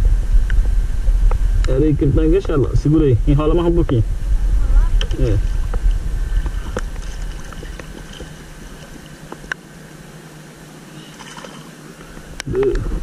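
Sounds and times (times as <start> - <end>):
low rumble: 0.0 - 9.1
water lapping around a kayak: 5.4 - 9.5, 10.9 - 12.4.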